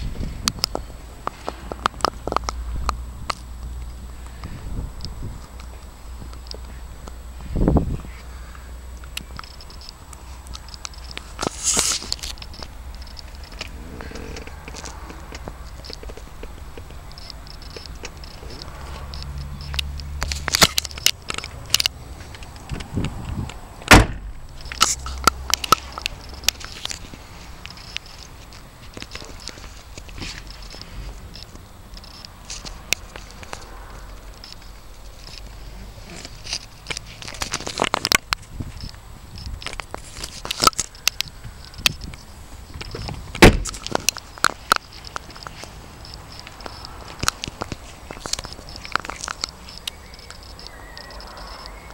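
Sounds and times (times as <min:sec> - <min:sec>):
handling clicks and knocks: 0:09.0 - 0:33.8, 0:36.1 - 0:50.8
car door clicks and knocks: 0:23.8 - 0:24.4, 0:42.9 - 0:44.0
car door shutting with thump: 0:23.8 - 0:24.4, 0:43.4 - 0:43.8.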